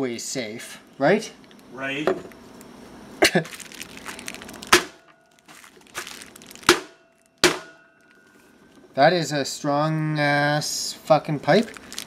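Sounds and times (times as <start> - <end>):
bubble wrap crinkling: 3.2 - 8.8, 11.0 - 12.0.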